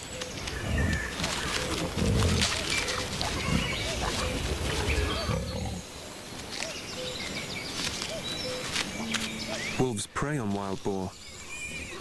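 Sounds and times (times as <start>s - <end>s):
wild boar grunting: 0.6s - 6.0s.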